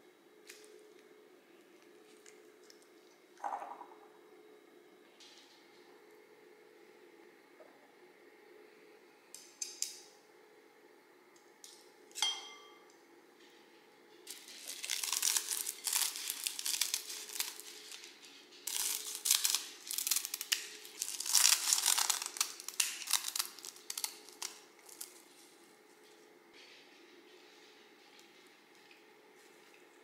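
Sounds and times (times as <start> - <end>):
tongs clinking glass bowl: 12.2 - 12.8
dry seaweed crackling: 14.3 - 18.1, 18.7 - 25.2.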